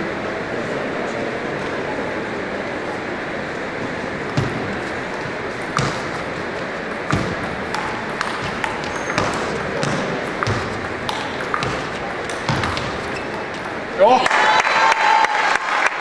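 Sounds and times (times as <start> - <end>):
hall noise: 0.0 - 16.0
table tennis ball clicking: 5.7 - 13.8.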